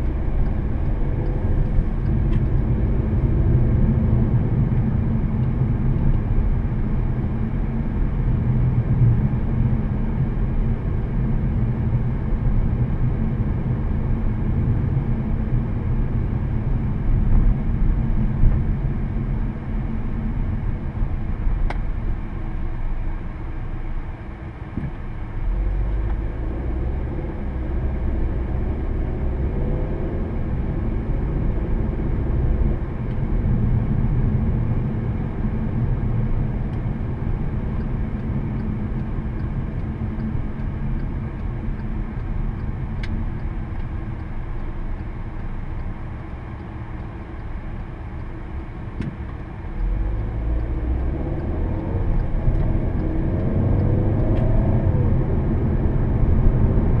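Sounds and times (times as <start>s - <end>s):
car engine and road noise: 0.0s - 57.0s.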